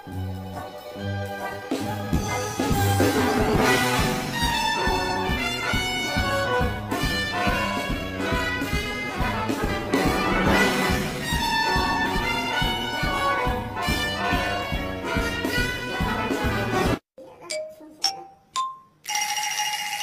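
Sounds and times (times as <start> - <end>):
upbeat brass band music: 0.0 - 17.0.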